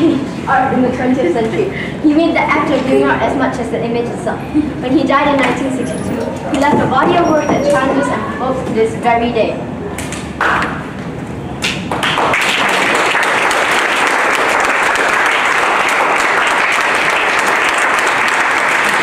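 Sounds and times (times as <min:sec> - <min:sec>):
audience applauding: 0:11.6 - 0:19.0.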